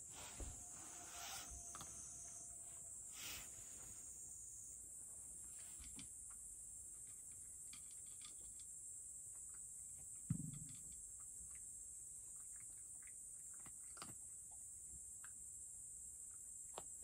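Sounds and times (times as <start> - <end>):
steady high hiss: 0.0 - 5.9
dull thump: 0.2 - 0.9
cat licking and chewing: 11.5 - 15.4.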